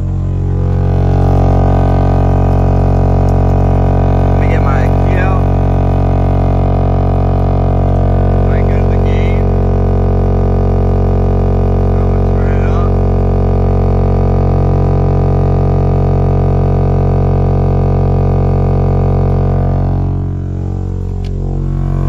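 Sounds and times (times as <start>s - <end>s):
loud buzzy subwoofer test tone: 0.0s - 22.0s.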